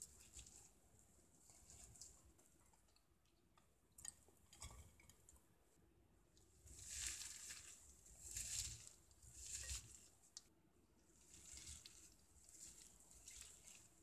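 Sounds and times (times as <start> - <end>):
squishing and crinkling of food: 0.0 - 14.0.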